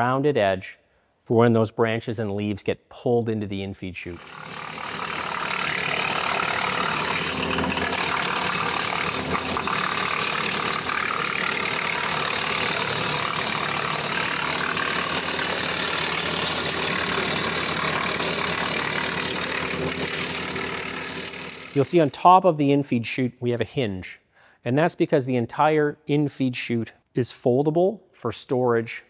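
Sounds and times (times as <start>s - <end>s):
tractor engine driving wood chipper: 4.2s - 22.0s.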